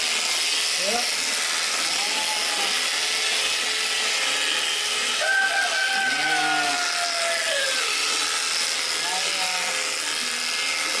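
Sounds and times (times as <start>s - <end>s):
electric shears cutting wool: 0.0s - 11.0s
sheep bleating: 1.8s - 3.0s, 5.4s - 7.5s, 9.0s - 10.0s.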